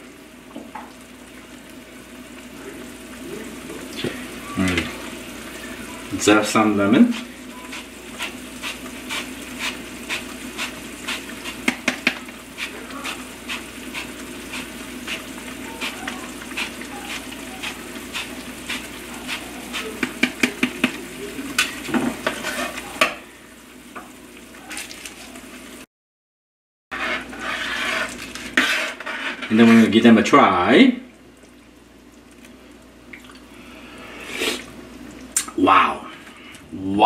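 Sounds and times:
stew bubbling in pan: 0.0s - 25.8s, 26.9s - 37.0s
lemon scraping on zester: 26.9s - 29.9s.

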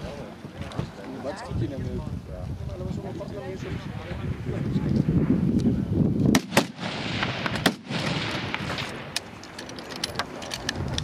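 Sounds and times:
rifle shots cracking: 6.3s - 10.3s.

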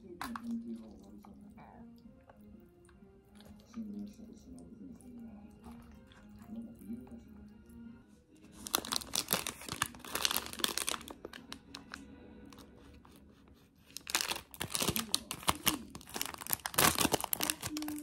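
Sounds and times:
plastic wrapping crinkling: 8.4s - 18.0s.

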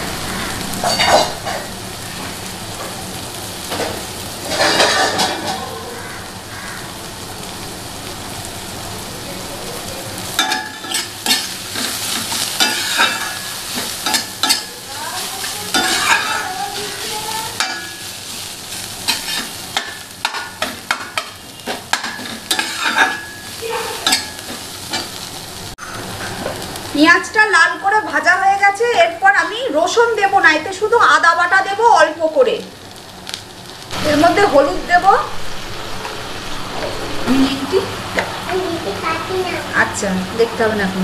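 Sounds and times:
onions sizzling in oil: 0.0s - 41.0s
metal spatula scraping pan: 0.2s - 1.7s, 4.4s - 5.6s, 10.4s - 25.2s.

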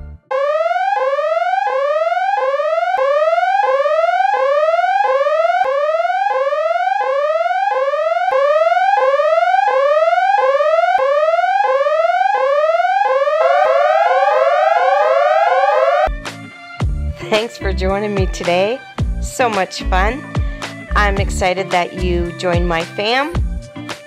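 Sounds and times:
synth tone sliding upward: 13.4s - 16.1s.

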